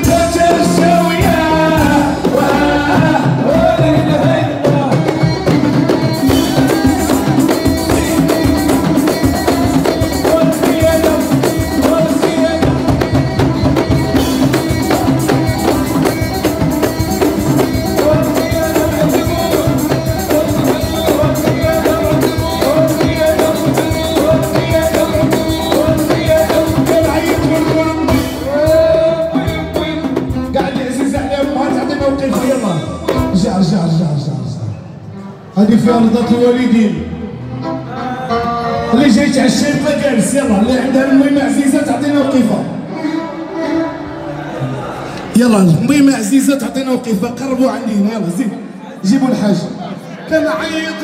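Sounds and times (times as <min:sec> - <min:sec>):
saxophone: 0:00.0 - 0:33.8, 0:34.4 - 0:40.1, 0:40.8 - 0:45.4
frame drums and hand drums: 0:00.0 - 0:34.0
keyboard: 0:00.0 - 0:51.0
violin: 0:35.0 - 0:45.4.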